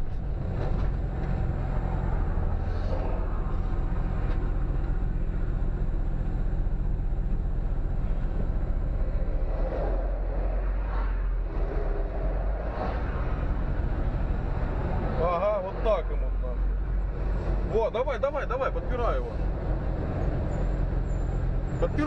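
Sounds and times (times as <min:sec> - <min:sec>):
road rumble: 0:00.0 - 0:22.0
vehicle engine humming: 0:00.0 - 0:22.0.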